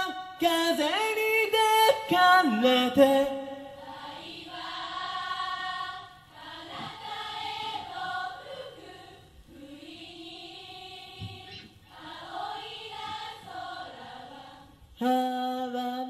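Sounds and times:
choir-like voices holding notes: 3.7 - 15.8.

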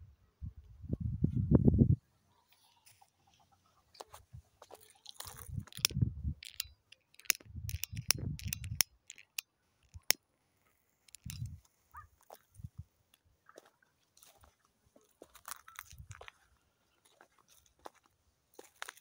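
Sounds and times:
footsteps on rocky ground: 4.0 - 6.0, 13.5 - 19.0.

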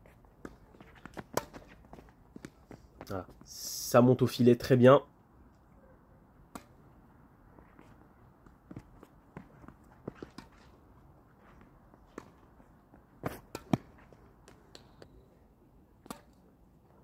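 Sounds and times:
racket striking tennis ball: 0.4 - 2.6, 6.5 - 6.8, 8.7 - 10.8, 13.2 - 15.1, 16.0 - 16.4
ball bouncing: 0.4 - 3.5, 7.7 - 10.8, 13.2 - 15.2
footstep scuffs: 7.5 - 14.8.

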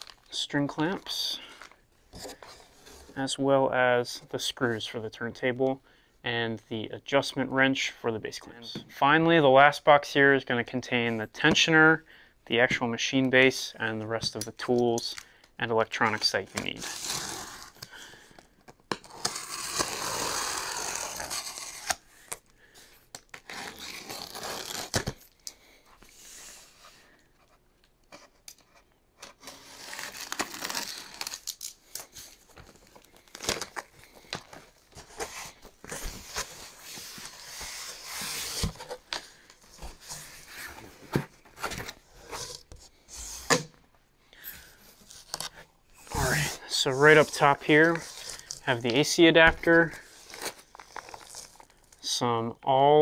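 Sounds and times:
box cutter slitting packing tape: 16.8 - 17.8, 18.9 - 22.0, 23.4 - 25.2, 29.4 - 32.2.

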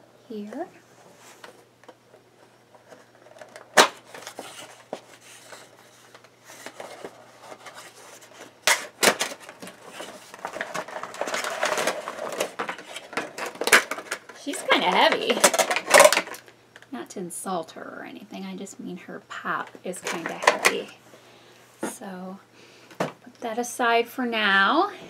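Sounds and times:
crinkly plastic rustling: 2.4 - 16.6, 19.6 - 21.0.

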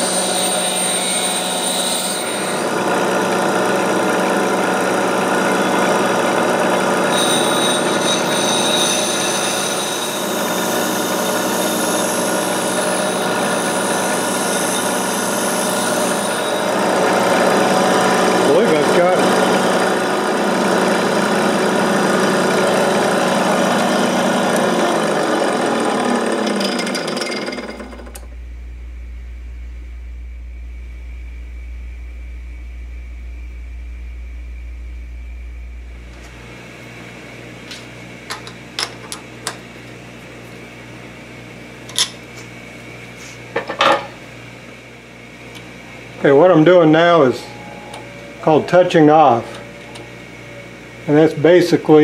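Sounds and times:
bench grinder grinding: 0.0 - 28.3
low steady hum: 28.2 - 37.4.

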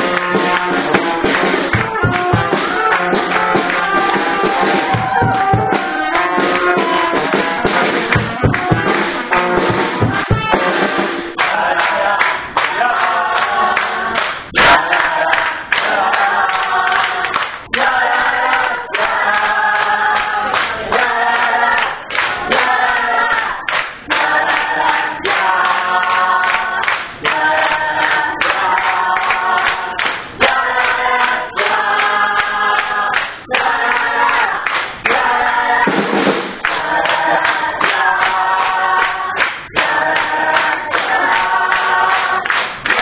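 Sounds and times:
sharp percussive hits: 0.1 - 11.5, 14.4 - 15.0.

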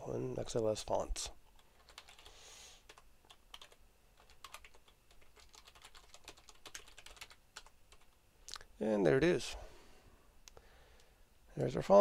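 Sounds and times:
typing on computer keyboard: 1.5 - 8.2.

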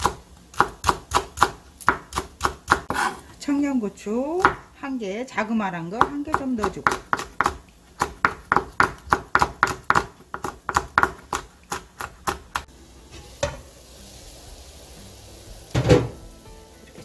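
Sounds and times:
knife chopping on wooden board: 0.0 - 3.2, 4.4 - 4.6, 6.0 - 12.7
broth boiling and hissing: 12.6 - 17.0.

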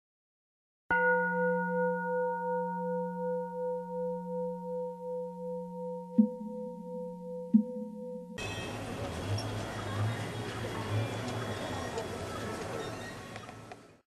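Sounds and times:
singing bowl ringing: 0.9 - 8.8.

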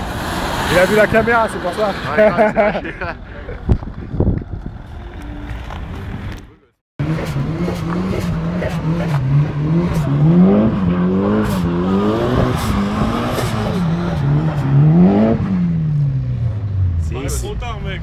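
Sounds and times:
car engine revving: 7.0 - 18.0.

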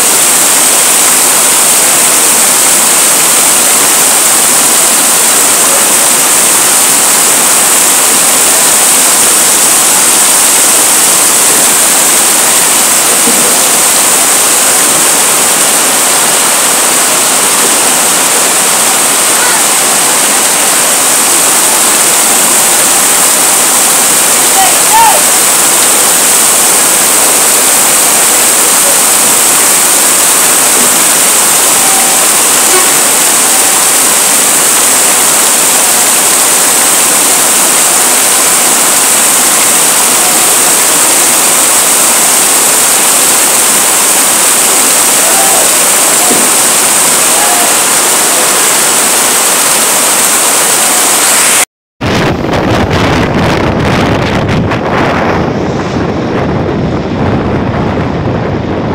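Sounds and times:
heavy rain pouring: 0.0 - 58.9
wind buffeting microphone: 52.0 - 58.9.

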